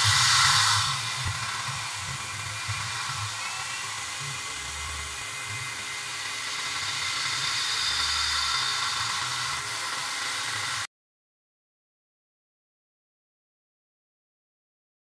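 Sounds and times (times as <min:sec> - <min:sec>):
coolant nozzle hissing: 0:00.0 - 0:10.9
end mill cutting metal: 0:00.0 - 0:10.9
milling spindle whine: 0:00.0 - 0:10.9.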